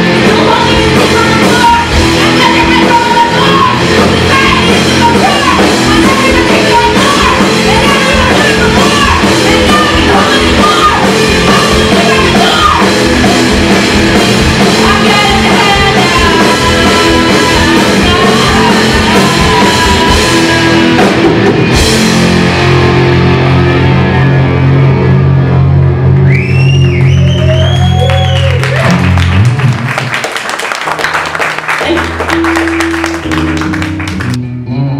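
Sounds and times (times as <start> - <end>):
person singing lead vocal: 0.0 - 13.7, 14.4 - 21.2
bass guitar: 0.0 - 34.9
drum kit: 0.0 - 34.9
electric guitars: 0.0 - 34.9.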